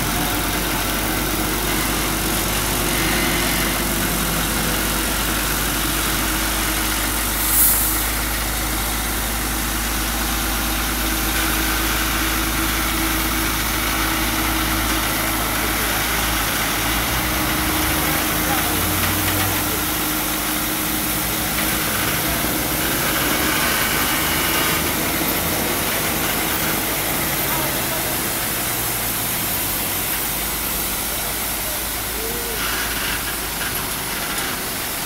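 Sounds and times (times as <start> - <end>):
truck diesel engines droning: 0.0 - 35.0
short sharp hiss: 7.3 - 8.3.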